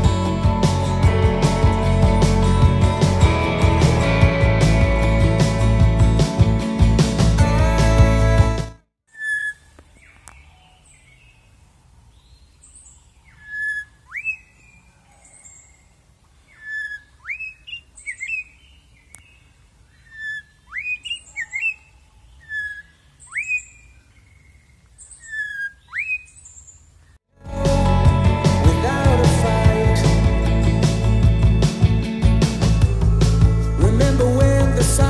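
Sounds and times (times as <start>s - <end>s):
high bird chirps: 9.1s - 11.3s, 12.2s - 15.9s, 16.5s - 26.9s
oriole whistled song: 13.4s - 14.6s, 16.6s - 18.6s, 20.0s - 24.5s, 25.2s - 26.4s.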